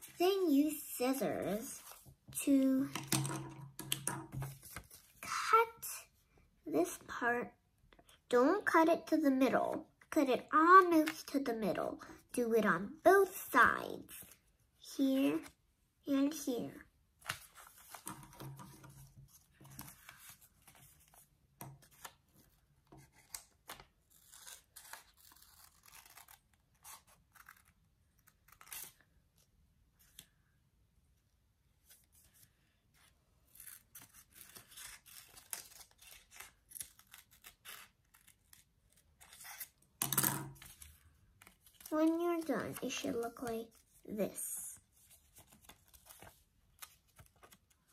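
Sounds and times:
paper rustling: 44.9s - 47.9s.

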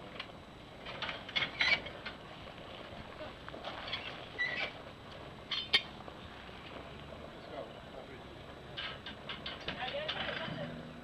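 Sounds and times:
horse trailer knocks and clanks: 0.8s - 2.2s, 8.6s - 11.0s
short squeak: 3.9s - 4.8s.

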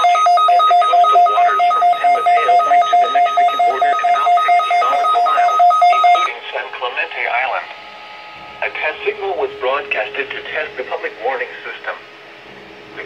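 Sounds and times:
rapid two-tone electronic beeps: 0.0s - 6.4s.

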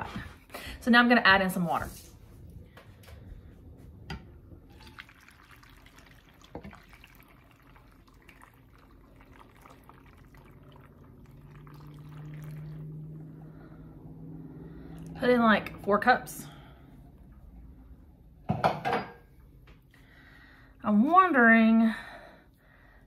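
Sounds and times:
low steady hum: 0.0s - 23.0s
water pouring and splashing: 4.6s - 13.4s.

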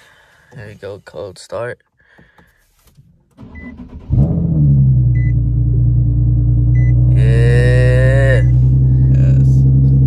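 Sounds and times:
car engine starting and idling: 3.1s - 10.0s
short beeps: 6.8s - 7.0s.

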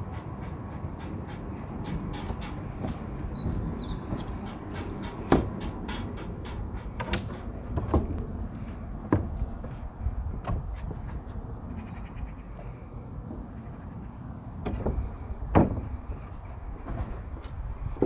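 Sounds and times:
steady low rumble: 0.0s - 18.0s
sharp knocks and clicks: 0.1s - 8.4s, 9.0s - 9.8s, 10.4s - 11.3s, 14.6s - 18.0s.

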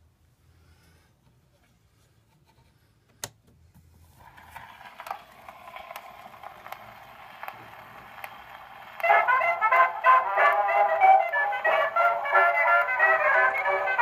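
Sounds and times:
record surface noise crackle: 4.2s - 14.0s.

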